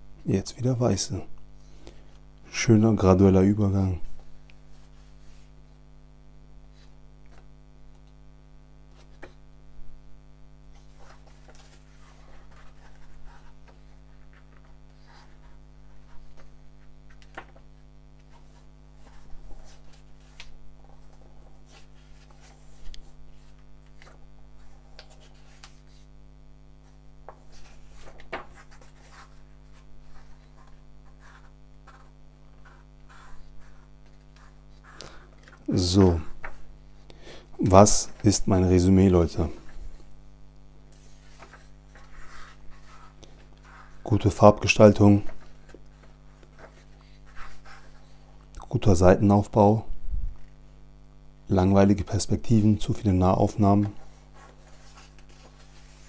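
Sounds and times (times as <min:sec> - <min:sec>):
steady electrical hum: 0:00.0 - 0:56.0
pages turning: 0:06.7 - 0:08.2, 0:08.9 - 0:09.4, 0:10.7 - 0:26.1, 0:26.8 - 0:36.8, 0:40.8 - 0:48.5, 0:53.7 - 0:56.0.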